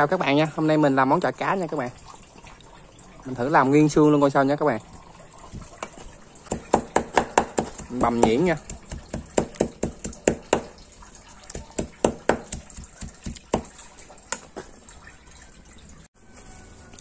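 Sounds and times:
cleaver chopping on wooden board: 6.5s - 10.8s, 11.6s - 13.7s.

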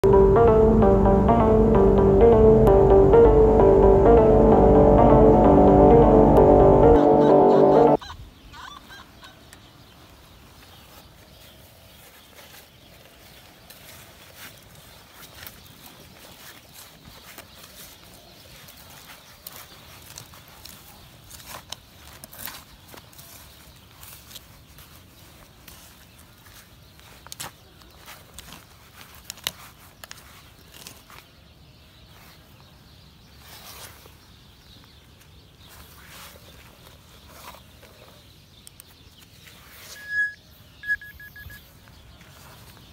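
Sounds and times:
background music: 0.0s - 8.0s.

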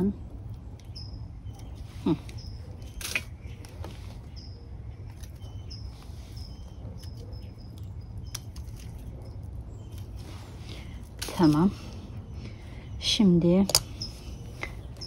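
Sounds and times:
flower stalk snapping: 2.9s - 3.8s.

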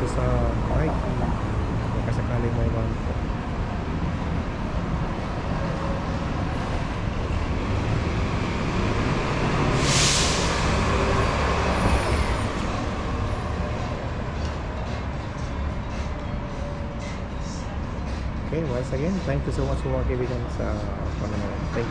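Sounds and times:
heavy vehicle rumbling: 0.0s - 21.9s
street traffic: 0.0s - 21.9s
sharp hiss of air: 9.7s - 10.9s.

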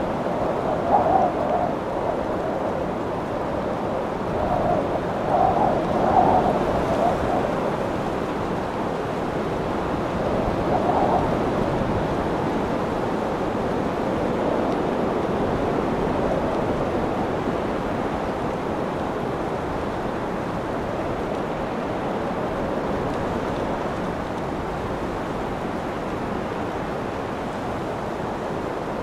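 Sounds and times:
strong wind gusting: 0.0s - 29.0s.

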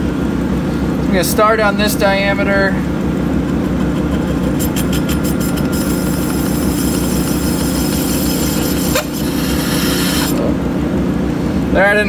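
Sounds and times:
metal lathe humming: 2.8s - 10.8s
high hiss of metal cutting: 5.7s - 10.4s.

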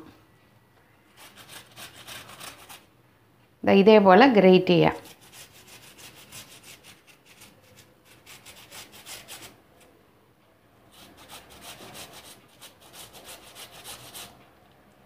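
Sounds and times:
ginger scraping on metal grater: 1.1s - 2.9s, 5.0s - 9.6s, 10.9s - 14.4s.

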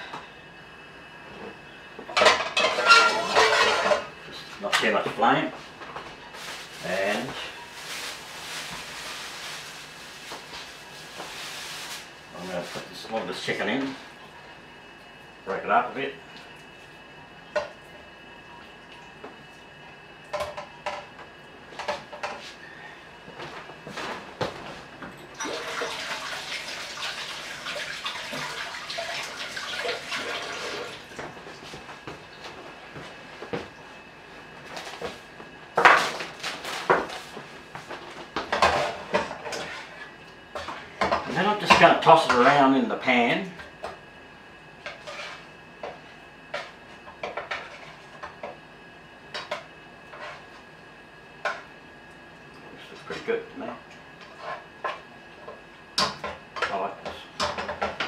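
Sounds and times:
utensil scraping frying pan: 2.2s - 4.1s, 38.6s - 40.9s, 44.8s - 45.5s, 50.1s - 50.5s.

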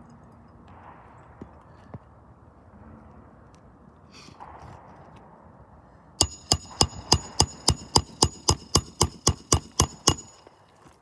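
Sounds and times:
hammer striking nail: 6.2s - 10.3s.

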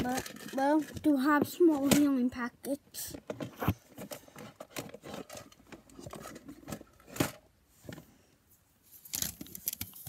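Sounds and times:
handling clicks and rustles: 0.0s - 2.4s, 3.1s - 8.0s.

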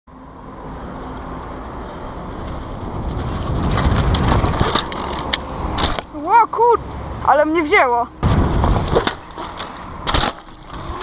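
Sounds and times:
wind over camera: 1.4s - 6.2s, 8.2s - 11.0s
bike clicks and rattles: 2.1s - 6.2s, 8.2s - 11.0s
tyres rushing on loose dirt: 2.7s - 6.0s.

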